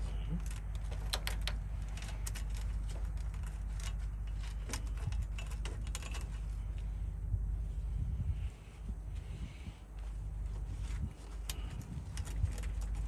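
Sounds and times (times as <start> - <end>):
air line clicks and rattles: 0.0 - 6.9, 10.9 - 13.0
steady low rumble: 0.0 - 13.0.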